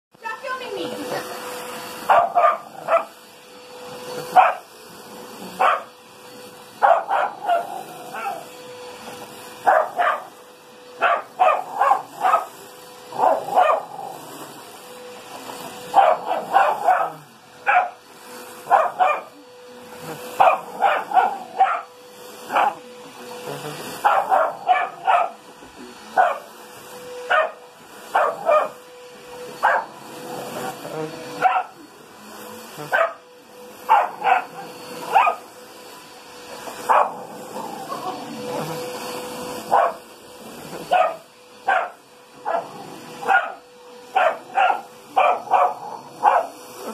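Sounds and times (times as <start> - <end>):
puppy barking: 2.0 - 3.1, 4.3 - 4.7, 5.6 - 5.9, 6.8 - 8.4, 9.6 - 10.3, 11.0 - 12.5, 13.1 - 14.0, 15.9 - 18.0, 18.6 - 19.3, 20.4 - 21.9, 22.5 - 22.8, 24.0 - 25.4, 26.2 - 26.5, 27.3 - 28.8, 29.6 - 30.0, 31.4 - 31.8, 32.8 - 33.2, 33.9 - 35.5, 36.9 - 37.2, 39.7 - 40.0, 40.7 - 46.6.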